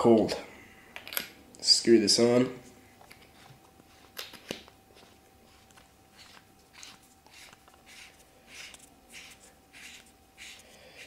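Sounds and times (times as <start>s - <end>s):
threads scraping: 3.0s - 11.0s.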